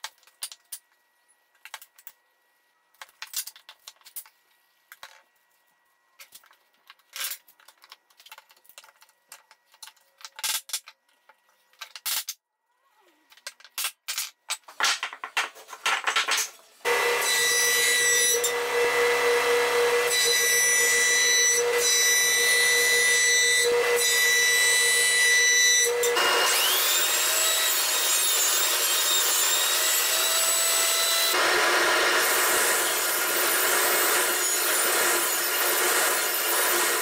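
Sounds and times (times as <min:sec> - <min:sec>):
jointer planing wood: 0:16.9 - 0:37.0
table saw cutting plywood: 0:16.9 - 0:37.0
thickness planer whining: 0:16.9 - 0:37.0.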